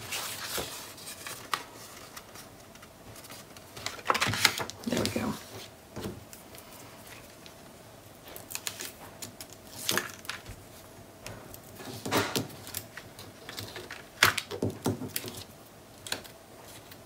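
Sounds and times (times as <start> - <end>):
paper rustling: 0.0 - 5.7, 8.2 - 10.8.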